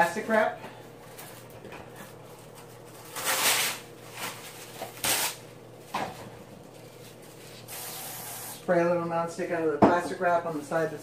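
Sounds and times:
cling wrap crinkling and tearing: 2.3 - 5.6.

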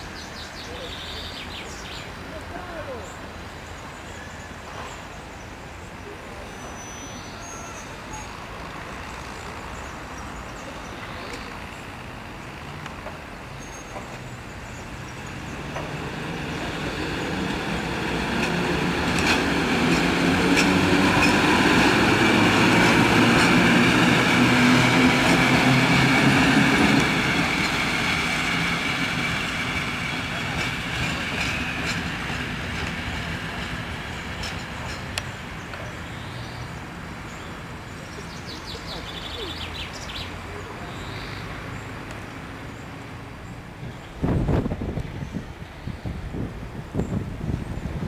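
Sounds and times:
electric locomotive hum: 7.8 - 36.0
wheels clicking over rail joints: 18.1 - 24.4, 29.7 - 35.9.

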